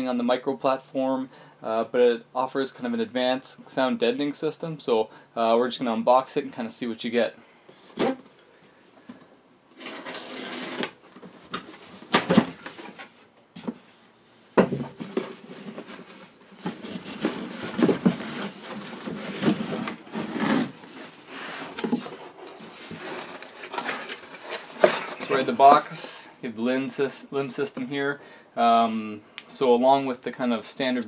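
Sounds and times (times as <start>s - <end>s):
cardboard box scraping and rustling: 9.8s - 11.0s, 14.8s - 25.9s.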